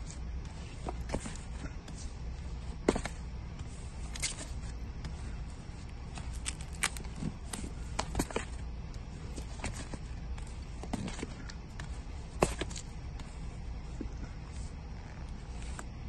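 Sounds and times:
record sleeves clicking and sliding: 4.0s - 8.6s.

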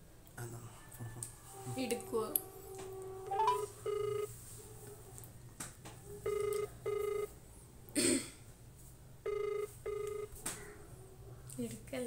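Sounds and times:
phone ringback tone: 3.3s - 4.4s, 6.3s - 7.3s, 9.2s - 10.4s.

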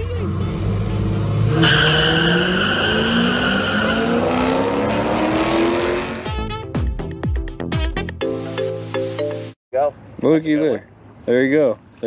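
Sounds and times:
drag racing cars accelerating: 0.0s - 6.3s
high screech: 1.6s - 5.3s.

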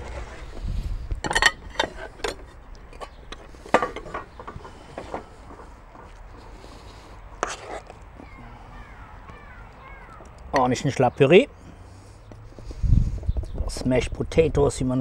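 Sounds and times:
metal spoon scraping in pot: 7.4s - 7.9s.

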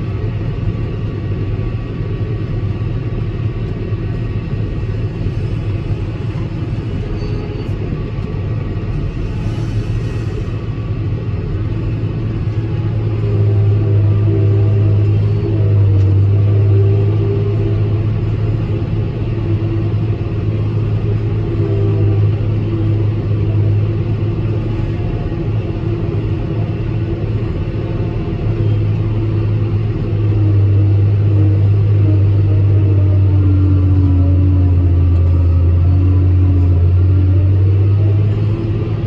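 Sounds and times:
forage harvester low drone: 0.0s - 39.0s.

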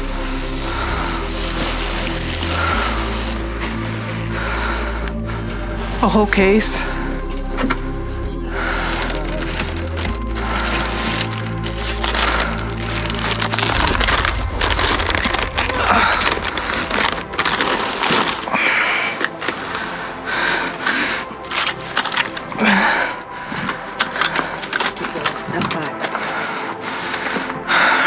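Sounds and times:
plastic bags crinkling: 8.8s - 20.0s, 24.0s - 26.1s.

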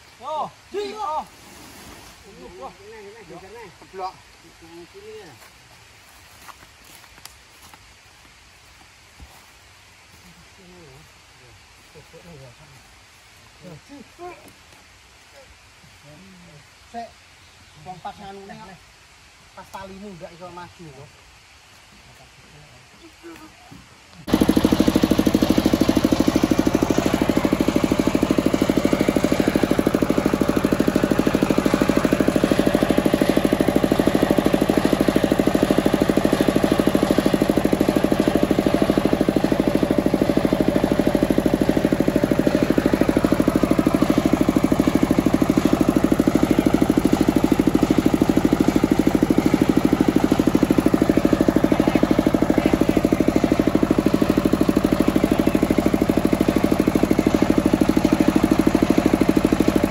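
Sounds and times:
diesel engine running: 23.9s - 59.9s.

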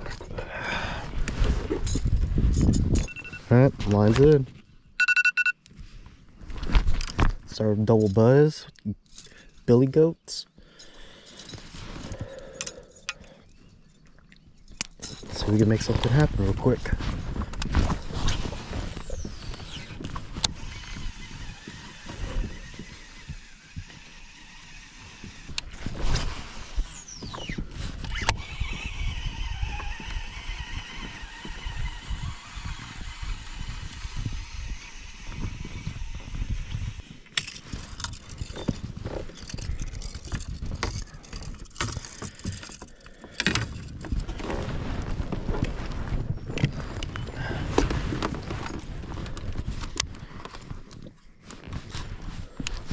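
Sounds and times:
fishing reel spool whirring out: 18.7s - 25.8s, 26.4s - 37.1s
fishing reel cranking whir: 18.8s - 25.8s, 26.6s - 38.7s.

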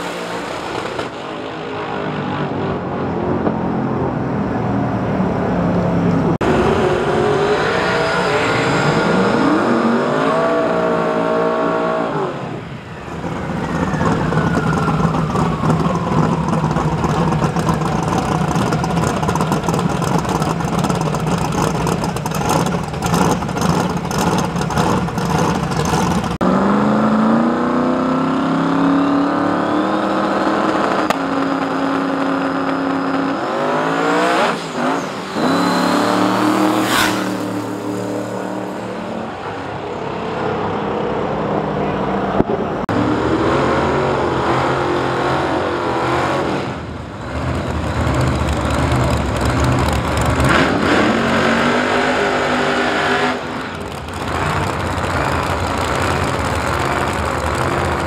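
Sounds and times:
racing car engines revving: 0.0s - 58.0s
engine crackling: 13.1s - 26.4s, 47.2s - 51.6s, 53.5s - 58.0s.

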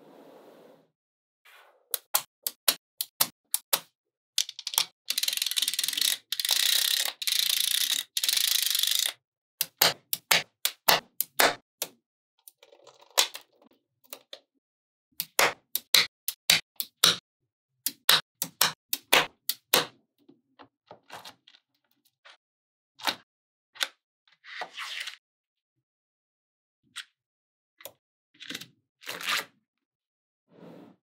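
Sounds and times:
balls clicking together: 2.0s - 11.6s.

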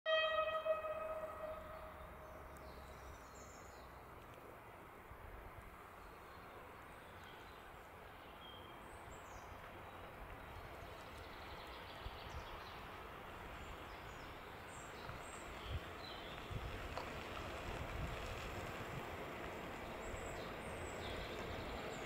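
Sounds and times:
distant freight train rumble: 0.1s - 2.9s, 9.4s - 22.0s
bird chirps: 0.1s - 3.8s.

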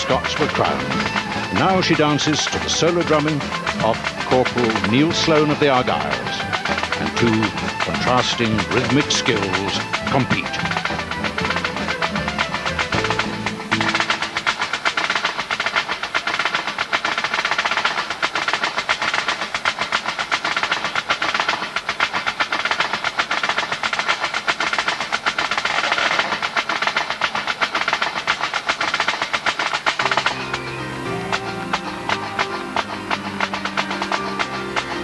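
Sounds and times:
pitched music: 0.0s - 16.4s, 30.0s - 35.0s
snare drum rolls: 0.0s - 35.0s.

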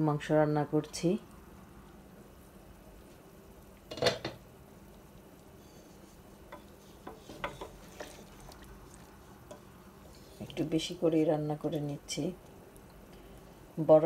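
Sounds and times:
spatula knocking against pot: 6.5s - 7.8s.

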